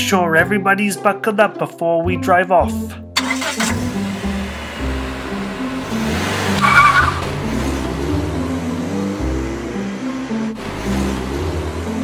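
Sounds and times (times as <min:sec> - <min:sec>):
car driving off: 0:03.2 - 0:12.0
music with bass line: 0:03.8 - 0:12.0.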